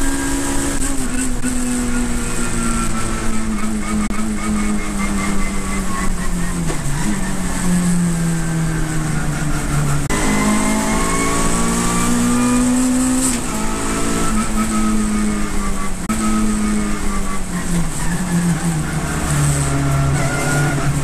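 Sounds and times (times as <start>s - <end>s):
race car engine revving: 0.0s - 21.0s.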